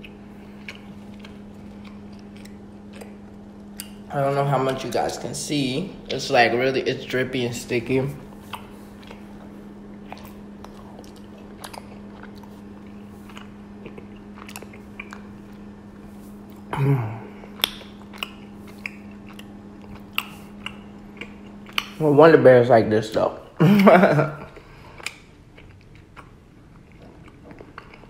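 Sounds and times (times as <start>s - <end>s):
sticky chewing with wet clicks: 0.0s - 4.8s, 8.4s - 16.7s, 17.5s - 22.0s, 24.4s - 28.0s
faint steady hum: 0.0s - 28.0s.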